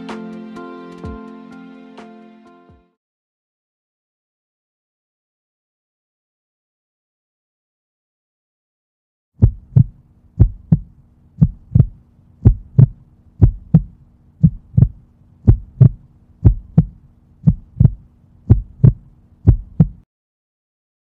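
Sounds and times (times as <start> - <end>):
faint low hum: 9.4 - 20.0
heartbeat thumps: 9.4 - 20.0.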